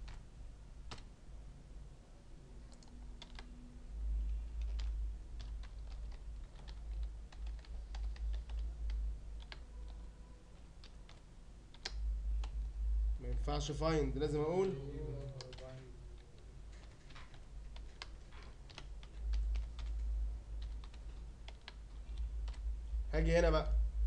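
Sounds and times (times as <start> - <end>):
typing on keyboard: 0.0 - 0.2, 0.9 - 1.1, 2.7 - 3.6, 4.3 - 10.0, 10.6 - 12.7, 15.2 - 22.7
low rumble: 22.2 - 24.0.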